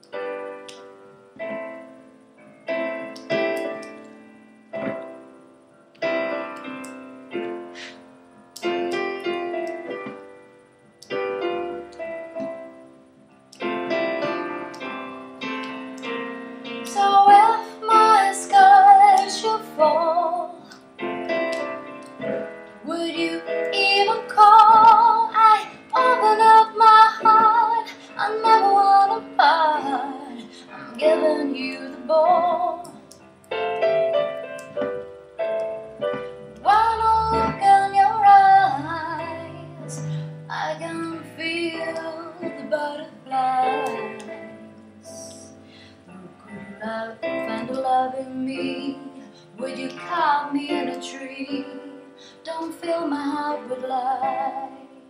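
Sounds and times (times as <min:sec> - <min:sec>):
piano chords: 0:00.0 - 0:55.0
woman singing with vibrato: 0:16.9 - 0:20.7, 0:22.8 - 0:33.1, 0:36.6 - 0:44.4, 0:46.1 - 0:55.0.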